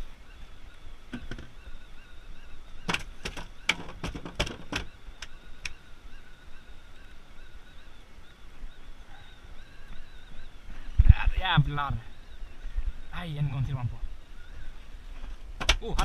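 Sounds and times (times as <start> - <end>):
faint steady background noise: 0.0 - 16.0
sharp clicks and knocks: 2.9 - 5.7.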